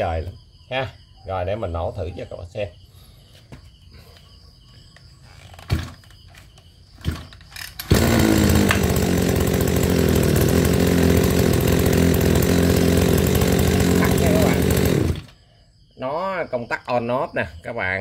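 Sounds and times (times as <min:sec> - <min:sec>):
recoil starter pulls: 0:05.6 - 0:06.2, 0:07.0 - 0:15.4
two-stroke engine running: 0:07.8 - 0:15.4.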